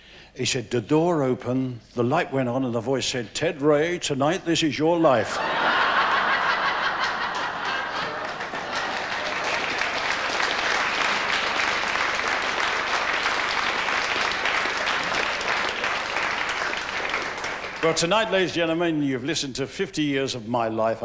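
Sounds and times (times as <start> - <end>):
audience applauding: 5.4 - 18.5.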